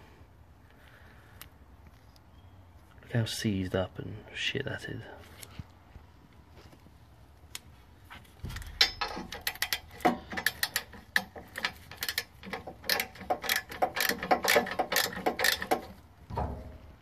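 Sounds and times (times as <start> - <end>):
ratchet wrench clicking: 8.8 - 16.0.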